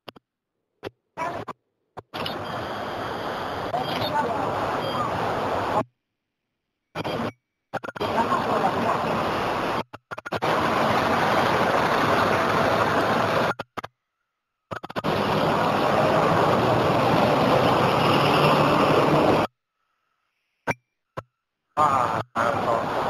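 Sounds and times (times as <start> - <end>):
bus engine running: 10.4 - 13.5, 15.0 - 19.5.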